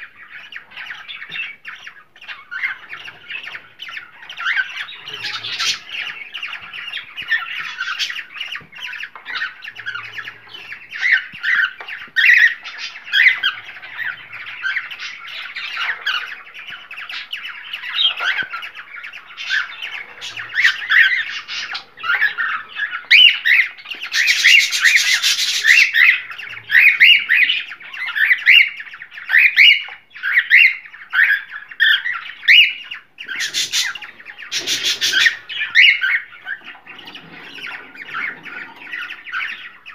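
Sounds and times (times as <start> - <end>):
cockatiels chirping and whistling: 0.0 - 39.9.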